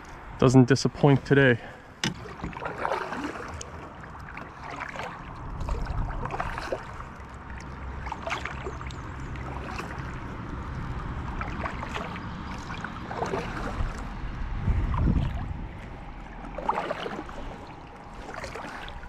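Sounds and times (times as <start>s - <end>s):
river water flowing: 0.0s - 19.0s
wind rumble on microphone: 5.0s - 18.2s.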